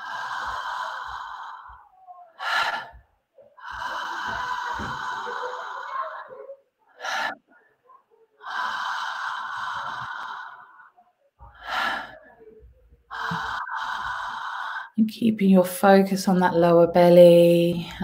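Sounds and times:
woman breathing through mouth: 0.0 - 3.0, 3.6 - 6.2, 8.4 - 12.5, 13.1 - 15.0.

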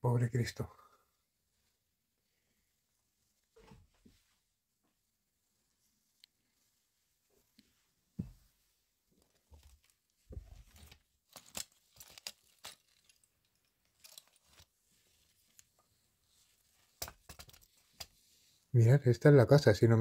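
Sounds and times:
rustles and knocks of handling things: 3.1 - 18.4.

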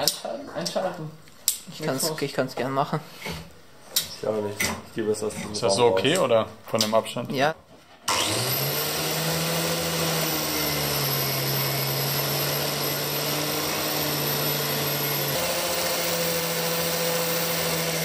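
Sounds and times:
angle grinder running: 8.1 - 18.0.

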